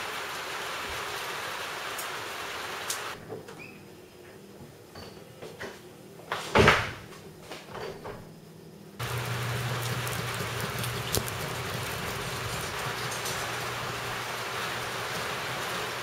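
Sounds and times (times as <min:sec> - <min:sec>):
rain hiss: 0:00.0 - 0:03.2, 0:09.0 - 0:16.0
garage door opener hum: 0:09.0 - 0:16.0.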